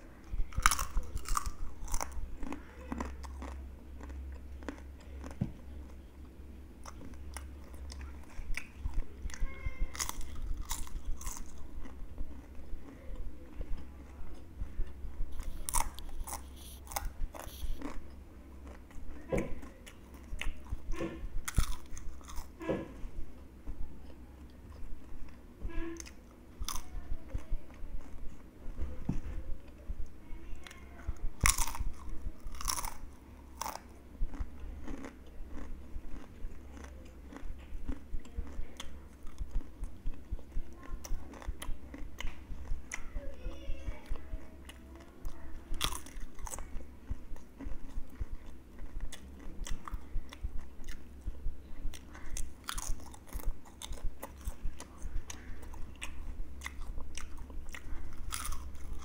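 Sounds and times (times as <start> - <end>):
potato chips crunching: 0.4 - 6.0, 6.8 - 13.0, 15.3 - 20.8, 21.5 - 22.6, 26.0 - 27.4, 31.4 - 43.1, 44.7 - 51.1, 51.8 - 59.0.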